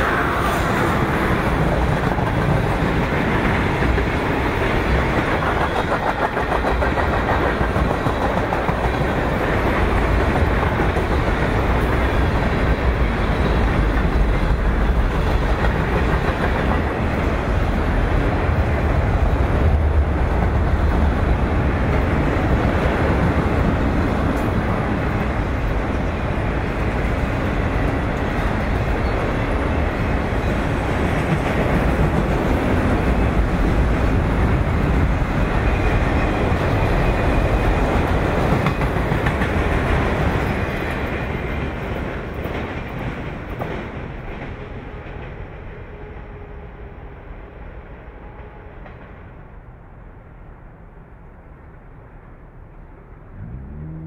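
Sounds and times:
freight train wheels rumbling on rail: 0.0s - 54.0s.

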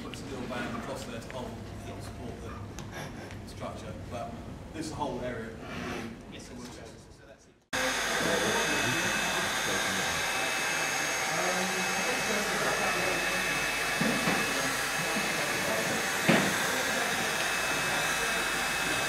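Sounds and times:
power tool motor whirring: 7.8s - 19.0s
knock: 16.3s - 16.6s.

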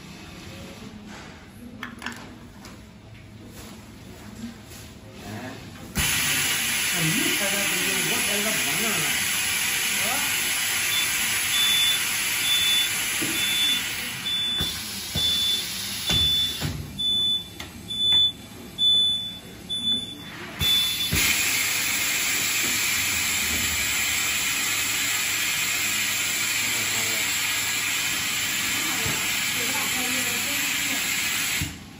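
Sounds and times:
machine hiss of air: 6.0s - 17.2s, 20.6s - 31.9s
short electronic beeps: 10.9s - 21.2s.

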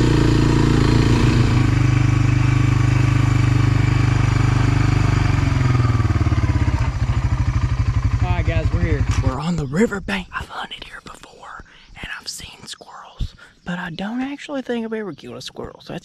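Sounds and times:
atv engine running and idling: 0.0s - 9.6s.

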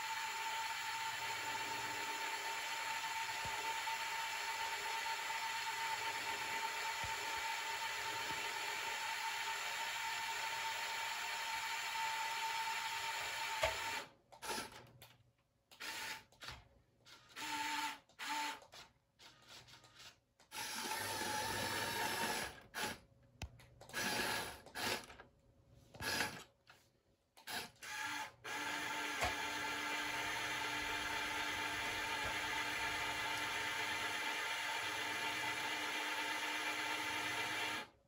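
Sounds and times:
toy electric motors whirring: 13.5s - 15.1s, 15.7s - 23.0s, 23.8s - 25.2s, 26.0s - 26.5s.

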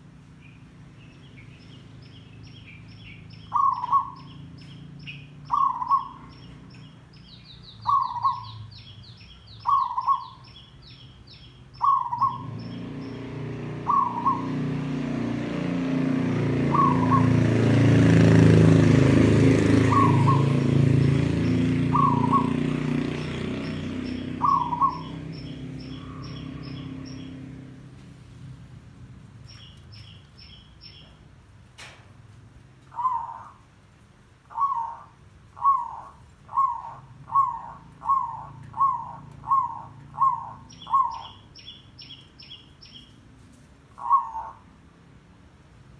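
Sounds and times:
small birds chirping: 0.0s - 31.6s, 32.4s - 44.8s
dove cooing: 3.5s - 4.4s, 5.4s - 6.5s, 7.8s - 8.6s, 9.6s - 10.4s, 11.8s - 15.0s, 16.5s - 17.8s, 19.0s - 27.5s, 32.9s - 33.6s, 34.5s - 41.4s, 44.0s - 44.7s.

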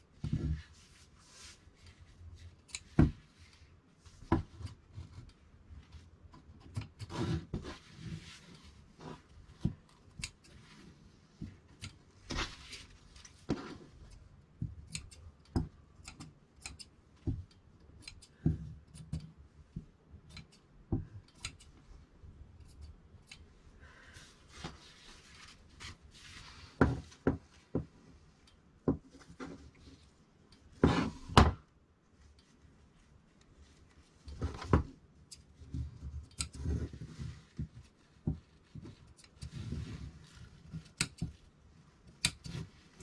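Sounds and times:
shears snipping cloth: 6.6s - 10.9s, 40.2s - 41.4s
fabric rustling: 24.1s - 28.4s.

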